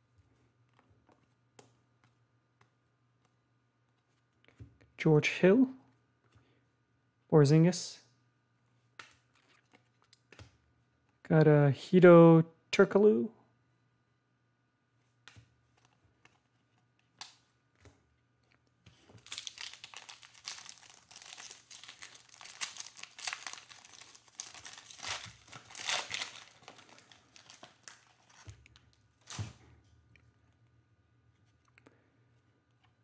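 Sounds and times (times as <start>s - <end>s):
plastic wrapper crinkling: 18.9s - 29.4s.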